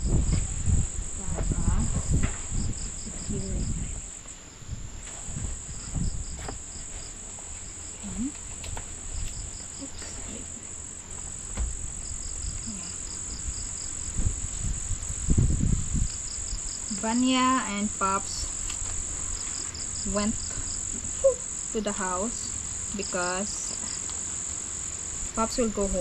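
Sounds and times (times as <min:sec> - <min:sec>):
rapid insect chirps: 0:00.0 - 0:26.0
insects shrilling: 0:05.2 - 0:26.0.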